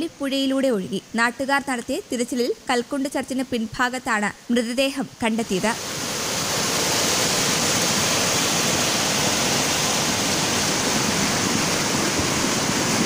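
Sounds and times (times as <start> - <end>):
water rushing over rocks: 5.6 - 13.0.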